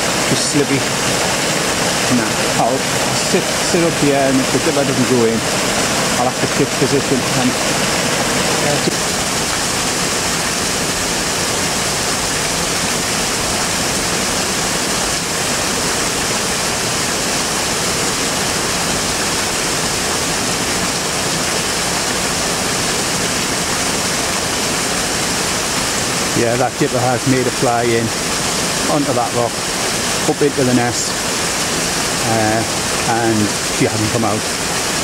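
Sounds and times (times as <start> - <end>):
small waterfall over rocks: 0.0 - 35.0.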